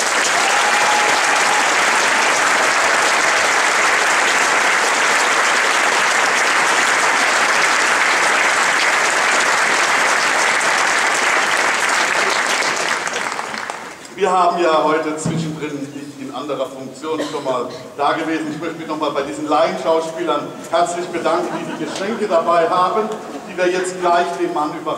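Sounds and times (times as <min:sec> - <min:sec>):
audience applause: 0:00.0 - 0:14.0.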